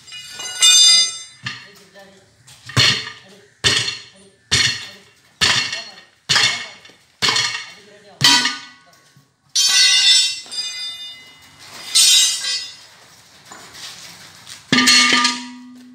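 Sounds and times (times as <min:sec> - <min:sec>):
ringing metal clangs: 0:00.0 - 0:02.0, 0:02.6 - 0:12.9, 0:14.7 - 0:15.9
hammer striking steel wheel rim: 0:00.4 - 0:01.7, 0:02.7 - 0:08.8, 0:14.7 - 0:15.9.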